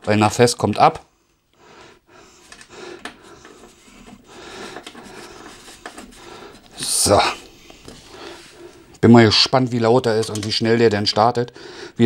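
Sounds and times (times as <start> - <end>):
screws scraping and clicking: 2.4 - 6.8.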